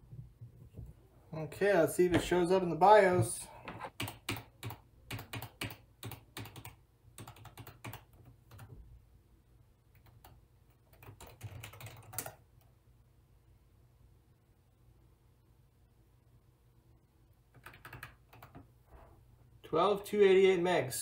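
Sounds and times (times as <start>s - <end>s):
computer keyboard keys tapping: 3.7s - 8.8s, 9.9s - 12.4s, 17.5s - 18.7s.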